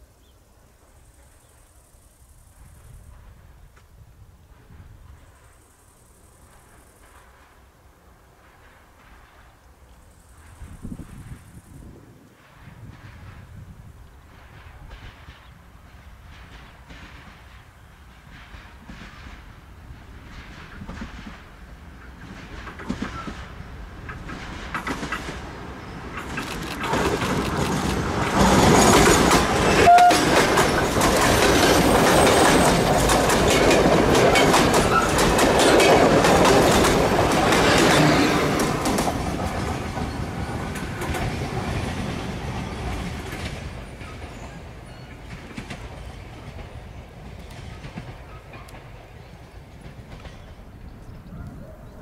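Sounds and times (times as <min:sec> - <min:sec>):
train passing: 0:00.8 - 0:52.0
wheels clattering over rail joints: 0:20.2 - 0:50.8.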